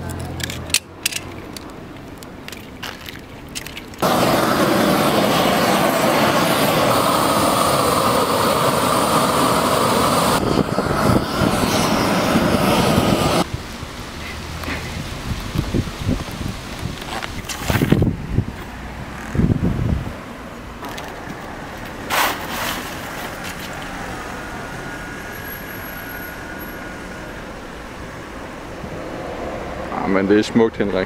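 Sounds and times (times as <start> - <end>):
propane torch burning: 4.0 - 14.0, 20.8 - 26.3.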